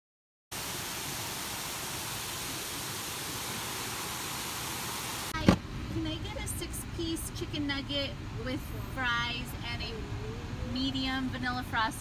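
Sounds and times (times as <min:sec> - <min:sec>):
water rushing over a weir: 0:00.5 - 0:05.4.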